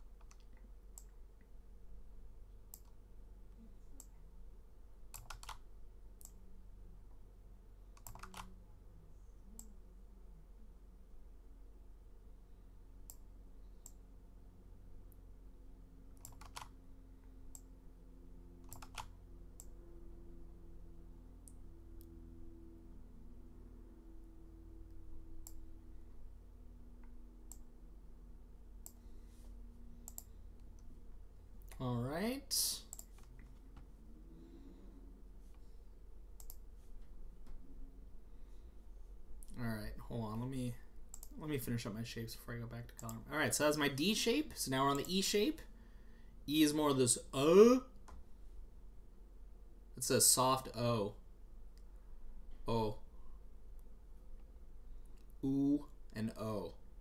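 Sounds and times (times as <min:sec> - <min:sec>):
low electrical hum: 0:00.0 - 0:57.0
computer clicks: 0:00.2 - 0:01.2, 0:02.7 - 0:03.0, 0:05.1 - 0:05.6, 0:07.9 - 0:08.5, 0:16.2 - 0:16.7, 0:18.6 - 0:19.7, 0:30.0 - 0:30.4, 0:32.9 - 0:33.5, 0:36.4 - 0:36.6, 0:41.1 - 0:41.4
faint computer clicks: 0:16.2 - 0:16.7, 0:18.6 - 0:19.8, 0:30.0 - 0:30.9, 0:36.4 - 0:36.6.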